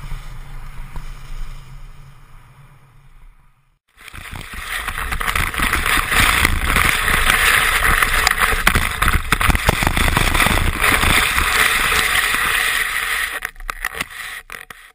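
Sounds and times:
wind rumbling on microphone: 0:00.0 - 0:14.1
skis sliding over snow: 0:03.9 - 0:14.9.

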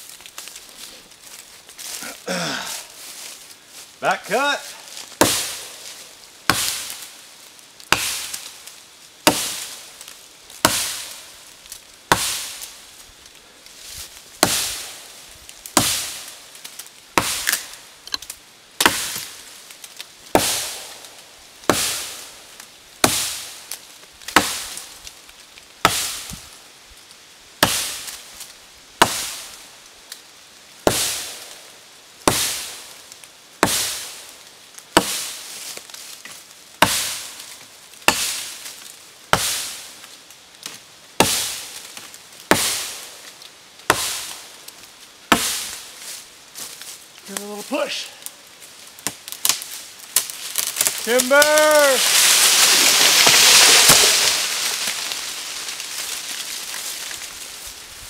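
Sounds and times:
axe chopping tree trunk: 0:05.2 - 0:05.8, 0:06.5 - 0:07.0, 0:07.9 - 0:08.5, 0:09.2 - 0:09.8, 0:10.6 - 0:11.2, 0:12.1 - 0:12.6, 0:14.4 - 0:15.0, 0:15.7 - 0:16.4, 0:17.2 - 0:19.4, 0:20.3 - 0:22.2, 0:23.0 - 0:23.6, 0:24.3 - 0:24.8, 0:25.8 - 0:26.4, 0:27.6 - 0:28.1, 0:29.0 - 0:29.5, 0:30.8 - 0:31.5, 0:32.2 - 0:32.8, 0:33.6 - 0:34.2, 0:35.0 - 0:35.4, 0:36.8 - 0:37.4, 0:38.0 - 0:38.6, 0:39.3 - 0:39.9, 0:40.6 - 0:43.0, 0:43.9 - 0:44.4, 0:45.3 - 0:45.8, 0:49.0 - 0:55.1.

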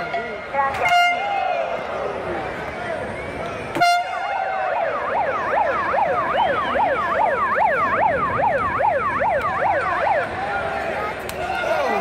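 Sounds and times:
crowd chatter: 0:00.0 - 0:12.0
warbling siren noisemaker: 0:04.0 - 0:12.0.

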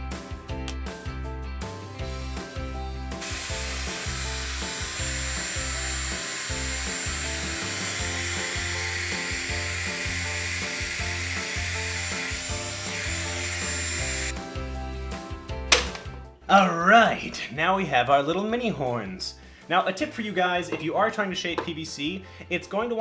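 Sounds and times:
background music with bass line: 0:00.0 - 0:23.0
heat gun hissing and whining: 0:03.2 - 0:14.3.

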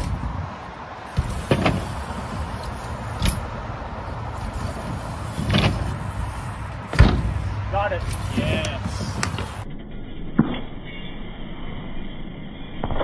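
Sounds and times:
bike wheels rolling on ramp: 0:00.0 - 0:09.7
steady low rumble: 0:00.0 - 0:09.8.

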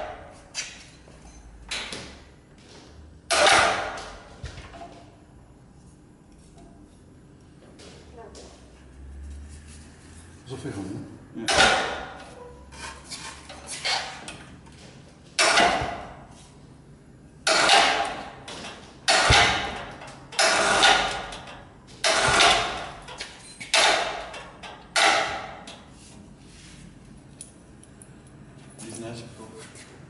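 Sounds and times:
hoist clunk: 0:03.3 - 0:04.0, 0:11.5 - 0:12.2, 0:15.4 - 0:16.2, 0:17.4 - 0:25.8.

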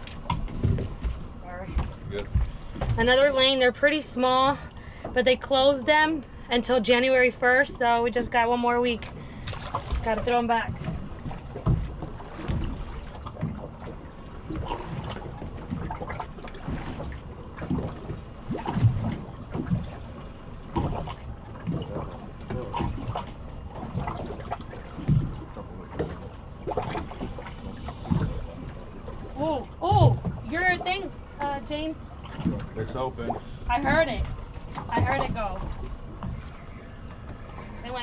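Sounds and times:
low thumps and knocks: 0:00.0 - 0:03.6, 0:09.5 - 0:38.0
water lapping against boat hull: 0:00.0 - 0:38.0.

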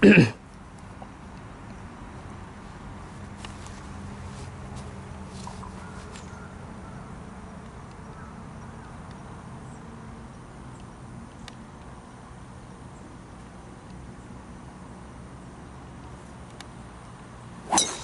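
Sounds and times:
low steady hum: 0:12.4 - 0:18.0.

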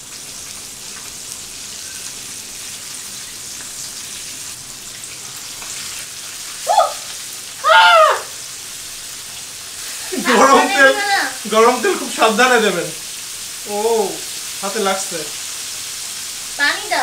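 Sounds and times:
fish deep-frying in hot oil: 0:00.0 - 0:17.0
man crying out: 0:07.6 - 0:08.4, 0:10.1 - 0:11.4.

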